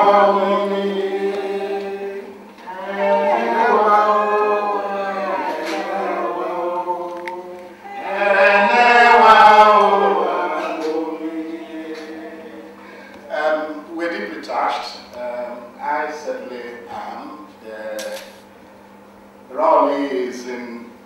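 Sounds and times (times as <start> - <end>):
voices singing long phrases: 0.0 - 13.7.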